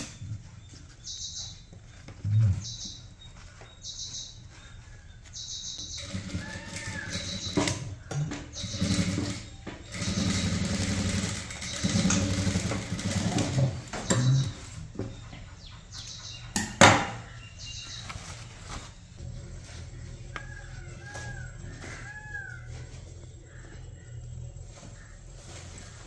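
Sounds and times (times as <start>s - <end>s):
sewing machine stitching: 6.0s - 14.6s.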